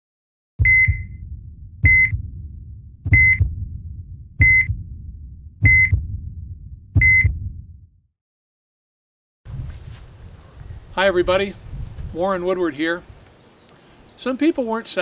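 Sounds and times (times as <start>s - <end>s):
heart monitor beep: 0.6s - 2.3s, 3.1s - 3.6s, 4.4s - 4.8s, 5.6s - 6.2s, 7.0s - 7.6s
heartbeat thumps: 0.6s - 8.0s.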